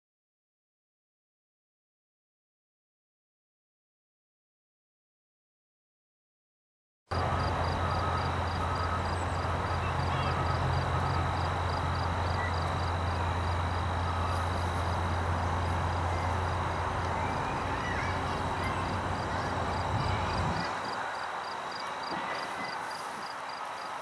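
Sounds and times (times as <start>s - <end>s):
rhythmic insect chirp: 7.1s - 24.0s
insect high trill: 7.2s - 24.0s.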